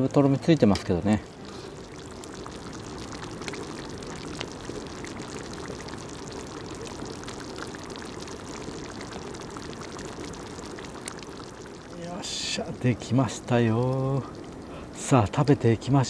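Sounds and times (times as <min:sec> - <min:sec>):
curry bubbling in a pot: 0:00.0 - 0:16.0
campfire pops and crackles: 0:00.6 - 0:12.8.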